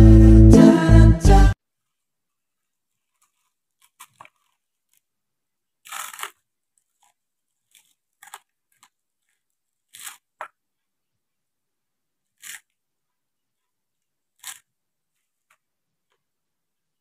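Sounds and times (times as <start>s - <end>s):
crunchy chips being chewed: 2.9s - 5.1s, 5.8s - 10.5s, 14.3s - 15.6s.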